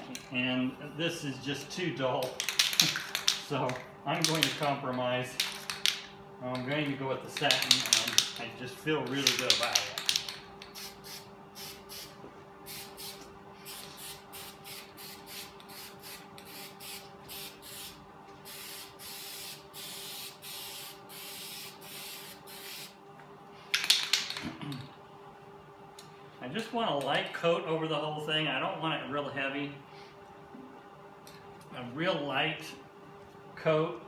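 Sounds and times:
spray paint can hissing: 9.2s - 12.1s, 12.7s - 23.0s.

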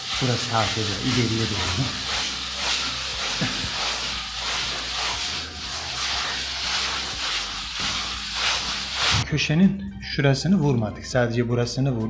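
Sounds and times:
plastering tool scraping mortar: 0.0s - 9.2s.

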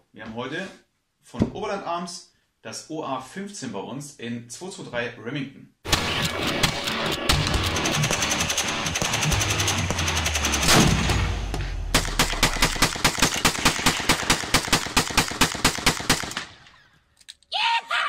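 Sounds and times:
rapid gunfire: 5.9s - 16.6s.

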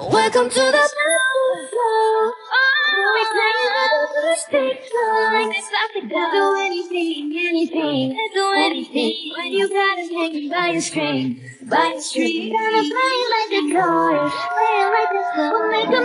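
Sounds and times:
women singing in a group: 0.0s - 16.0s.

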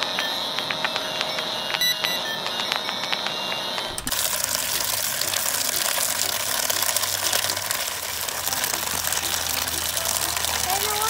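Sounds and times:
electronic tones and clicks: 0.0s - 11.0s
water pouring into plastic basin: 4.1s - 11.0s.

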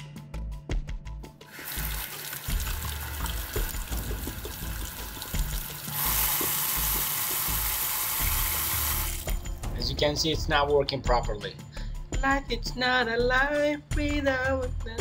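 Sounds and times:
tap water running into sink: 1.5s - 9.4s.

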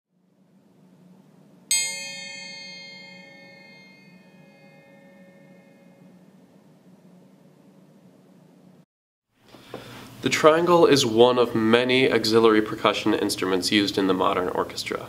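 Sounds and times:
metal triangle struck ringing: 1.7s - 6.6s.

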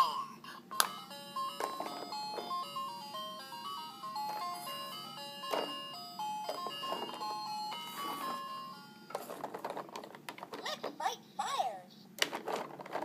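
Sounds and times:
toy beeping electronic melody: 0.7s - 9.2s.

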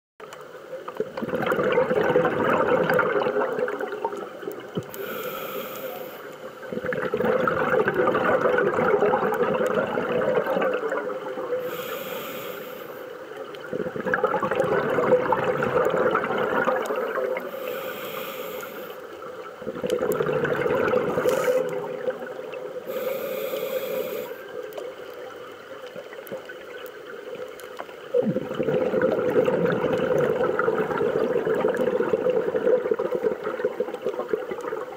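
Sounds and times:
exhaled bubbling underwater: 0.6s - 34.9s
regulator inhale hiss: 4.9s - 6.8s, 11.5s - 13.4s, 17.4s - 19.2s, 21.1s - 21.9s, 22.8s - 24.6s.

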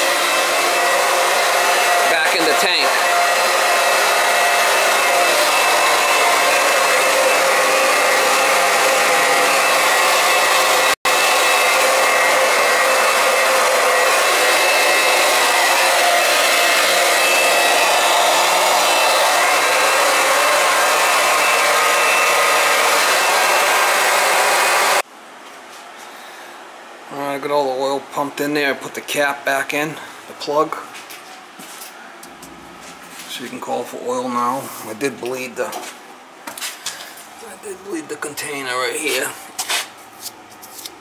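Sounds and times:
electric pump motor whine: 0.0s - 25.0s.

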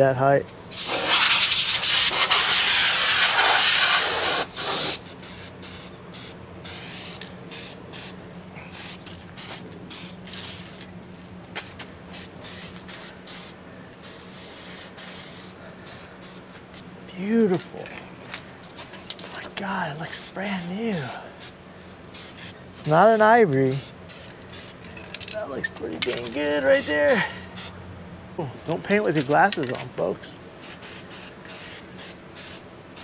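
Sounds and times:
compressed air blow gun hissing: 0.6s - 10.7s, 12.1s - 16.5s, 20.1s - 24.8s, 26.7s - 27.8s, 30.5s - 33.0s
spray paint can hissing: 0.7s - 10.7s, 12.1s - 16.4s, 20.1s - 24.8s, 30.6s - 33.0s.

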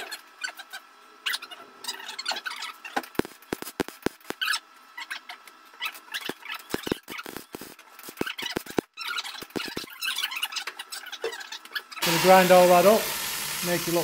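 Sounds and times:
welding arc crackling and popping: 3.0s - 4.6s, 6.1s - 10.0s, 12.0s - 14.0s.

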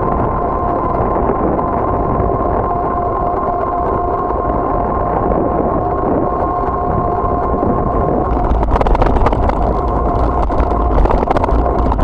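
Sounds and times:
steady high whine: 0.0s - 12.0s
wind noise: 0.0s - 12.0s
bike rattling on rough pavement: 7.0s - 12.0s.

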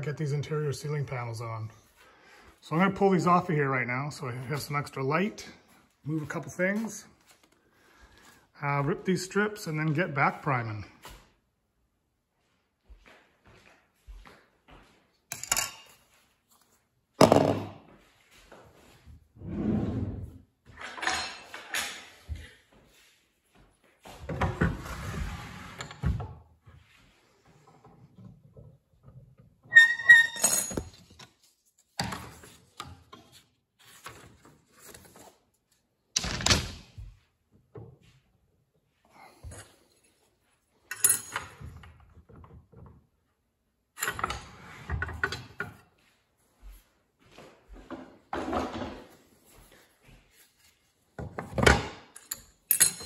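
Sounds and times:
wood and tools clattering: 20.7s - 22.5s, 24.1s - 35.4s, 36.2s - 38.1s, 39.3s - 43.2s, 44.0s - 46.1s, 47.8s - 53.0s.

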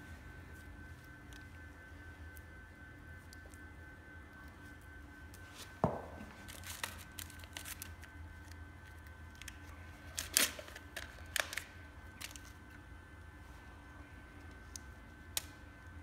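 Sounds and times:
gloved hands rustling packaging: 5.5s - 12.8s
dull thump: 5.8s - 6.4s.

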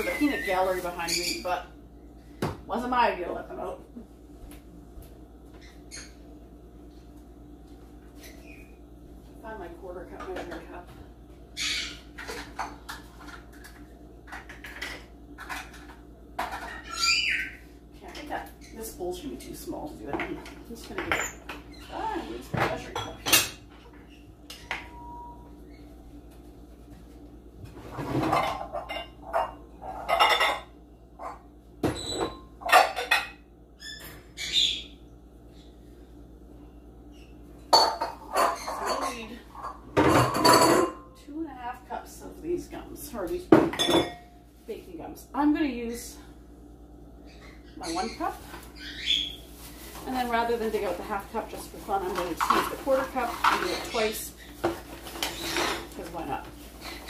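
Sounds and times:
pet birds calling: 0.0s - 1.6s, 11.5s - 12.4s, 16.6s - 17.8s, 33.8s - 35.9s, 47.2s - 49.6s
kitchen utensils clinking: 20.0s - 21.7s, 37.7s - 41.1s, 43.6s - 44.4s, 50.1s - 57.0s.

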